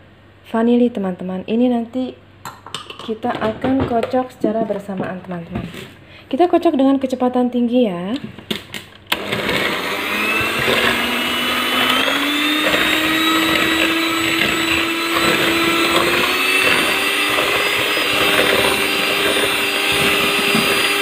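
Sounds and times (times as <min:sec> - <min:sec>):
electric hand mixer whirring: 0:09.1 - 0:21.0.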